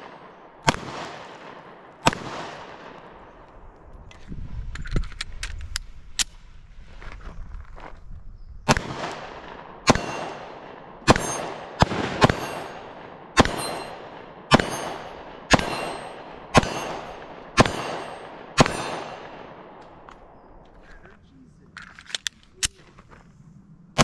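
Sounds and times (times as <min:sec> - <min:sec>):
pistol shots echoing: 0:00.0 - 0:03.4, 0:08.7 - 0:20.3.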